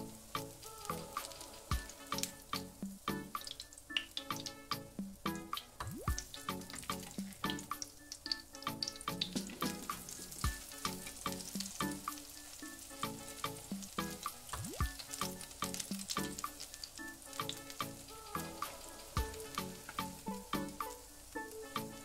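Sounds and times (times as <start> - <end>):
background music: 0.0 - 22.0
patties sizzling in hot oil: 0.0 - 22.0.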